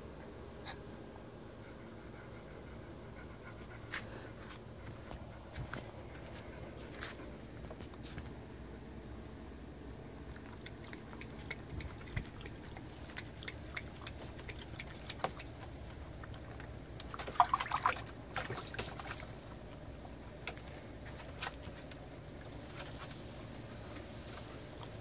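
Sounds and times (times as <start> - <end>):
dog lapping water: 10.2 - 22.9
small splashes and drips: 10.3 - 20.7.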